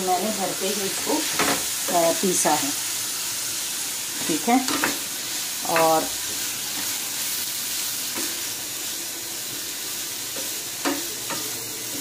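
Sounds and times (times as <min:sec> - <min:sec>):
food sizzling in a frying pan: 0:00.0 - 0:12.0
spatula scraping and knocking pan: 0:01.0 - 0:02.0.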